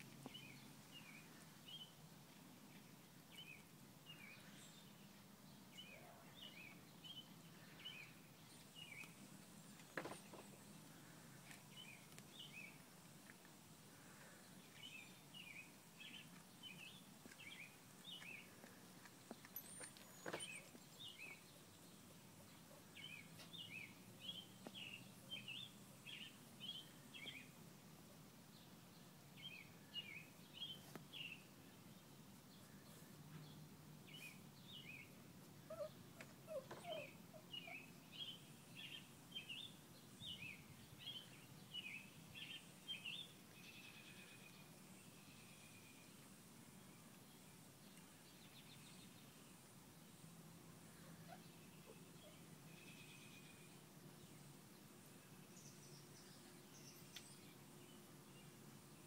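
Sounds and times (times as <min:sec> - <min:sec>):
small bird chirping: 0:35.7 - 0:46.2.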